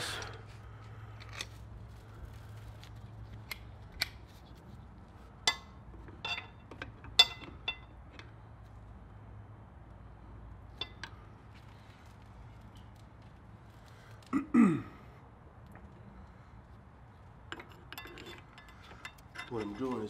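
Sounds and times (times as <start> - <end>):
metal parts clicking and clinking: 5.4 - 8.3, 17.5 - 20.0.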